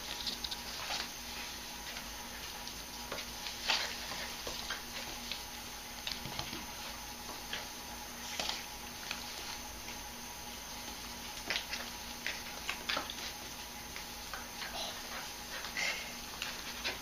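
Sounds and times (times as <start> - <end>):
dog claws clicking on tile floor: 11.3 - 14.5.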